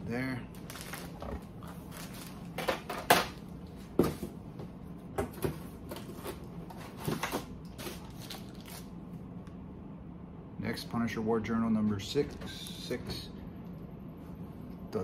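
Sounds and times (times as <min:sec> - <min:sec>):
packaging rustling: 0:00.5 - 0:03.4, 0:05.9 - 0:08.9.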